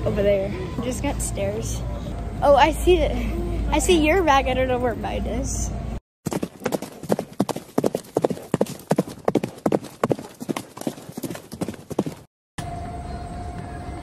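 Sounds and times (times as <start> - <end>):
horse hooves trotting: 6.3 - 12.3.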